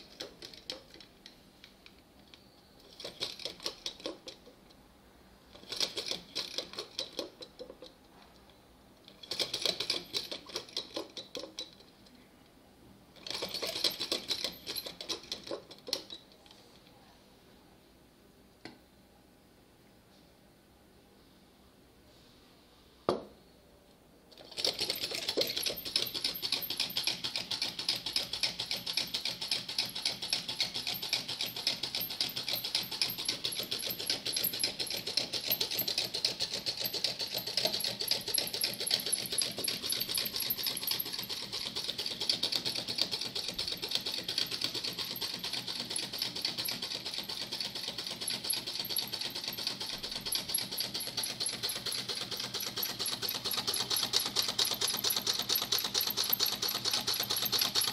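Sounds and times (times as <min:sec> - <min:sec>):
small engine mechanical clatter: 0:02.8 - 0:04.5, 0:05.5 - 0:08.0, 0:09.1 - 0:11.8, 0:13.2 - 0:16.2, 0:24.3 - 0:57.9.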